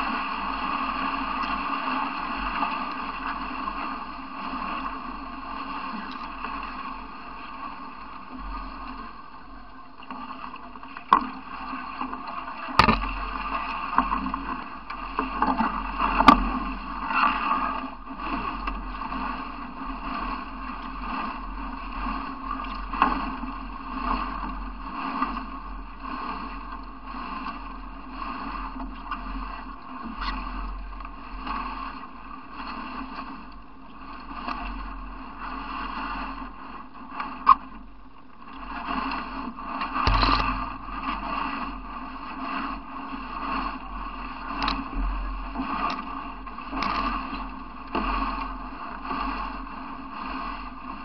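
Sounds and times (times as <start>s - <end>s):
water sloshing: 0.0s - 35.4s, 36.8s - 49.9s
reeds scraping along canoe hull: 0.0s - 51.0s
sharp knocks on hull: 12.8s - 13.3s, 40.0s - 40.8s.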